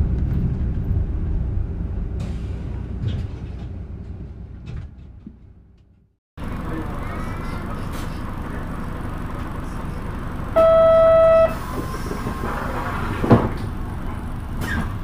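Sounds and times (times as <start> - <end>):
bus engine rumble: 0.0 - 15.0
electronic beep: 10.6 - 11.6.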